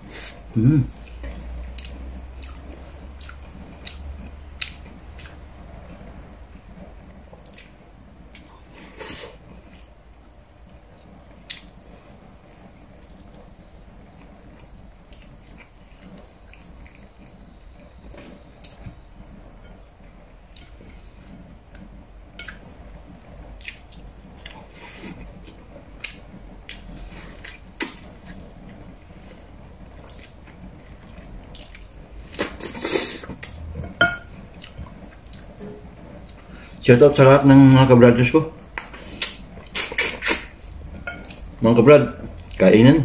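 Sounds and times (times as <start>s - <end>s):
man chewing with lip smacks: 1.1s - 4.0s, 30.0s - 33.6s
sucking food off fingers: 39.0s - 40.7s.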